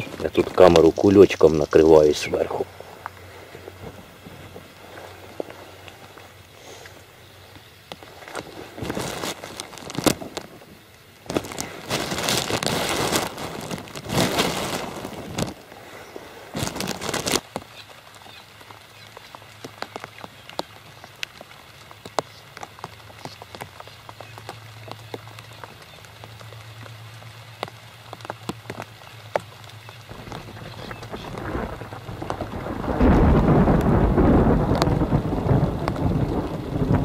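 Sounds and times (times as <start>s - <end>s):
rain drops tapping on plastic: 0.0s - 37.0s
plastic bag crinkling: 8.2s - 15.6s, 16.5s - 17.4s.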